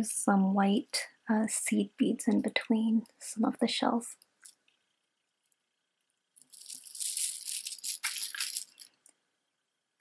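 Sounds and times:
shell necklace rattling: 6.4s - 9.0s.

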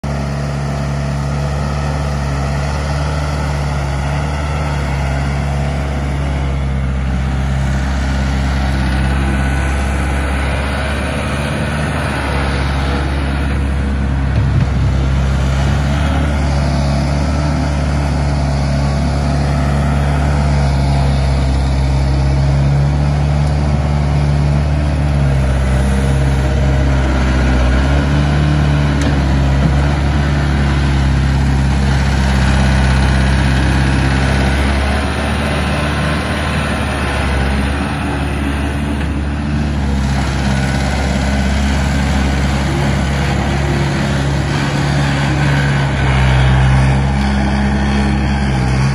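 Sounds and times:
diesel engine running: 0.0s - 48.9s.

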